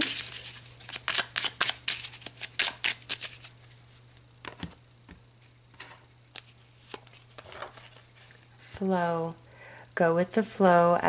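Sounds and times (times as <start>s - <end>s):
cards being shuffled: 0.0s - 4.8s, 5.4s - 8.4s.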